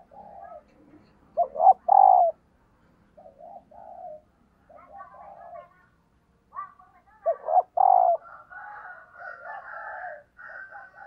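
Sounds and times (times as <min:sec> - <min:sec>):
dove cooing: 0:00.0 - 0:02.4, 0:03.2 - 0:05.6, 0:07.2 - 0:11.0.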